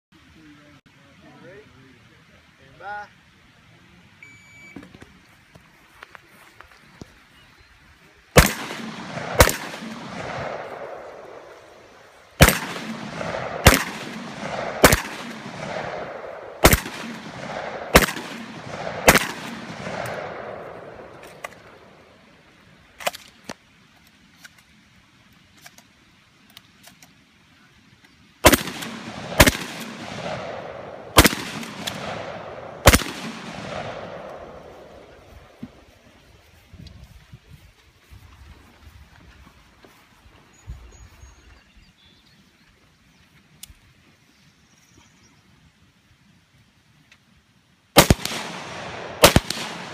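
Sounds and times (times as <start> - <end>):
echoing gunshots: 8.4 - 22.0, 28.4 - 35.6, 48.0 - 49.9
faint clicks: 42.6 - 43.9.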